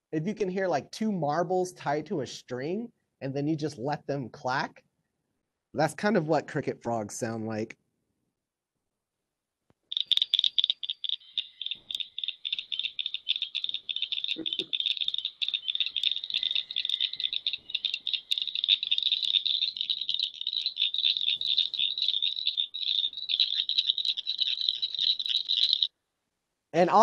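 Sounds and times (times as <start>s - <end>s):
frog calling with sharp clicks: 9.9s - 25.9s.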